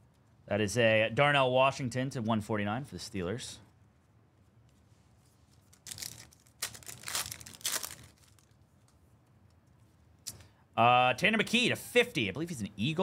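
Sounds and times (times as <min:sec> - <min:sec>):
foil wrapper crinkling and tearing: 0:05.6 - 0:08.6.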